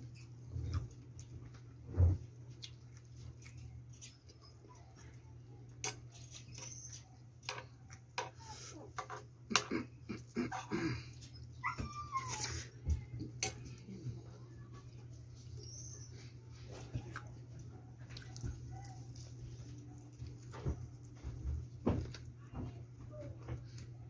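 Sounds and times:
chewing and mouth smacks: 2.3 - 7.0, 16.7 - 21.5.

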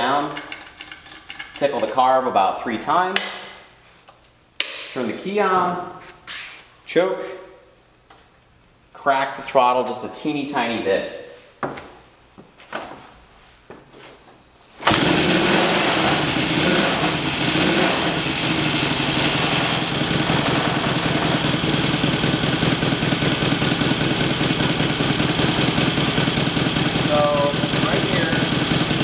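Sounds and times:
motorcycle engine starting: 14.8 - 29.0.

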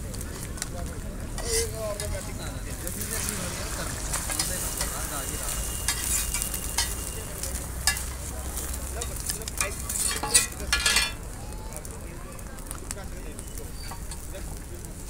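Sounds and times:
flatbread sizzling on griddle: 0.0 - 15.0
metal spatula scraping griddle: 1.3 - 11.2, 13.7 - 14.4.

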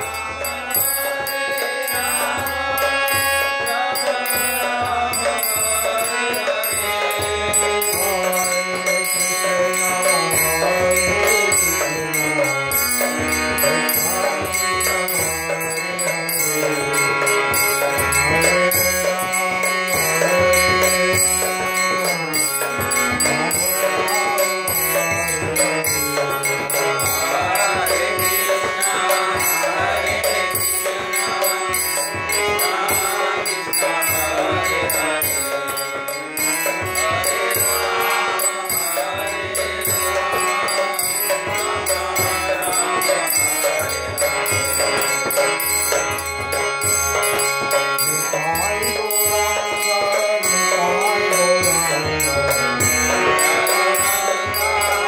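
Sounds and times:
harmonium chords: 0.0 - 55.0
light jingling percussion: 0.0 - 55.0
man singing a chant: 0.0 - 55.0.

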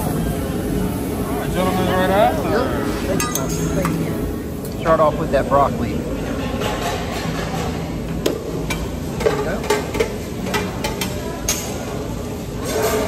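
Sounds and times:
faint background chatter: 0.0 - 13.0
utensils clinking on dishes: 2.8 - 4.1, 6.3 - 12.0, 12.6 - 13.0.

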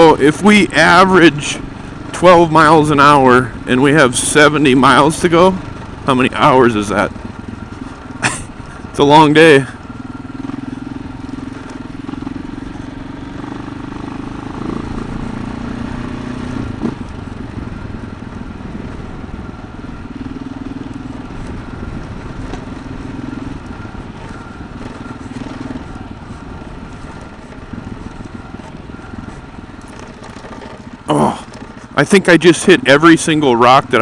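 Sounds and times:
motorcycle engine: 0.0 - 34.0
wind and road noise: 0.0 - 34.0.

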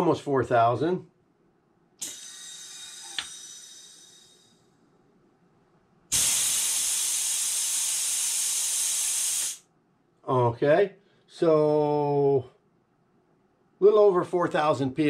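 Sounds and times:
compressed air hissing: 2.0 - 4.6, 6.1 - 9.7
loud steady air hiss: 2.0 - 4.6, 6.1 - 9.7.

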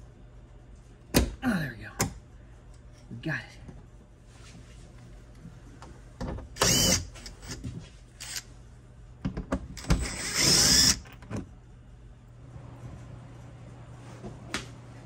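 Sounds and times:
cordless driver spinning: 6.6 - 7.6, 8.2 - 8.4, 9.8 - 11.2.

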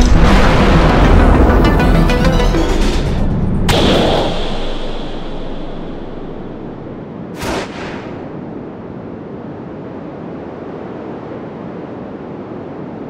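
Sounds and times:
short sharp hit: 0.0 - 8.4
rushing rumble: 0.0 - 10.3.

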